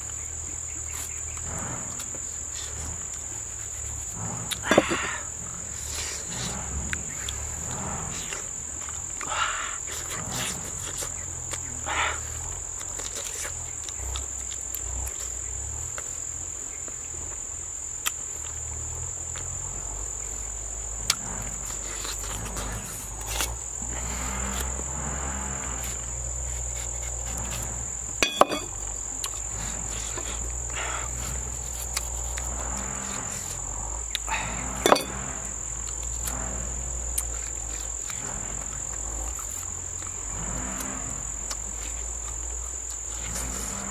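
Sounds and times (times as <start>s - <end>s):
chewing: 0.0s - 16.2s, 18.0s - 43.9s
high-pitched insect drone: 0.0s - 43.9s
banana being peeled and cut: 5.8s - 16.2s, 21.0s - 43.9s.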